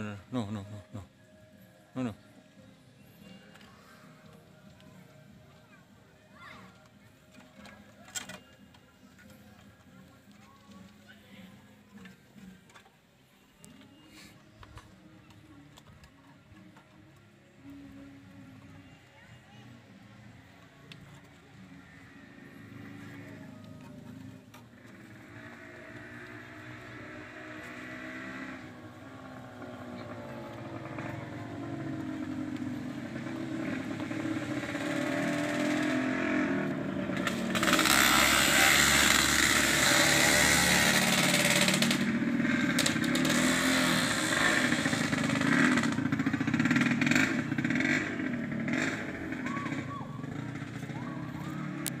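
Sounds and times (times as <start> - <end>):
engine running: 20.4 - 52.0.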